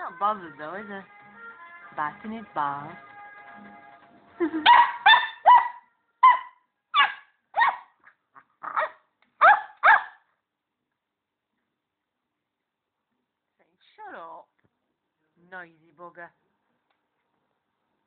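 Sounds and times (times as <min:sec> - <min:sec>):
puppy barking: 0:04.6 - 0:10.3.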